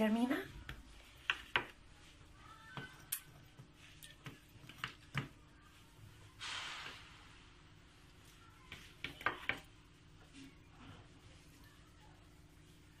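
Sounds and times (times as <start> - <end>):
short breathy hiss: 6.4 - 7.2.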